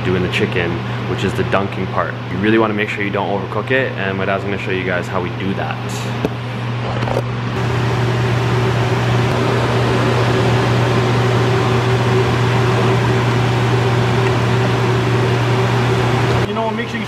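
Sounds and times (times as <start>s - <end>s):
range hood fan humming: 0.0s - 17.0s
water at a rolling boil: 6.8s - 17.0s.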